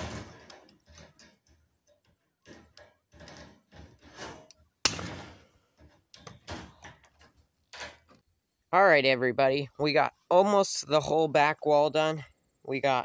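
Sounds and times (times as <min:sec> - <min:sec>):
wire mesh clicking and rattling: 0:00.0 - 0:08.2.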